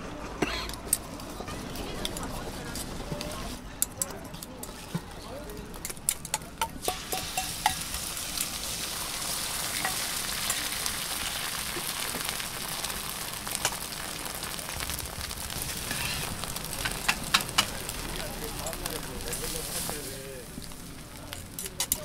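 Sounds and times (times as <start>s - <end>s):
egg mixture sizzling on griddle: 5.7s - 22.0s.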